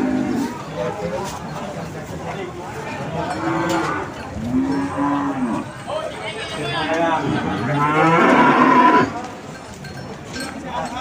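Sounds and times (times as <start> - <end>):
cattle mooing: 3.3 - 5.7, 7.4 - 9.2.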